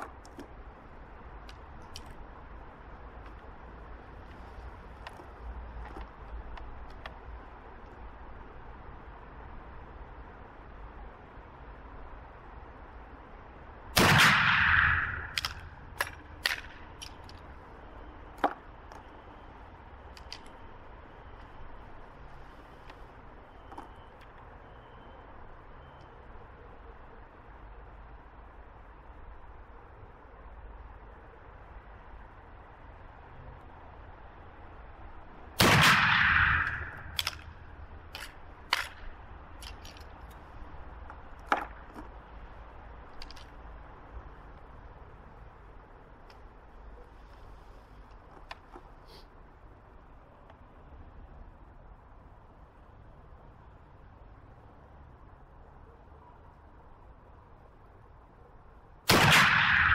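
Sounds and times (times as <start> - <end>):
rifle shot blast: 14.0 - 15.4, 35.6 - 37.3, 59.1 - 59.9
rifle breech metallic clicks: 35.9 - 37.5.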